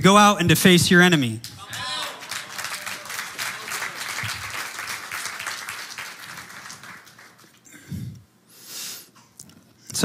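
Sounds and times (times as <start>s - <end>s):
crowd applauding: 1.4s - 7.9s.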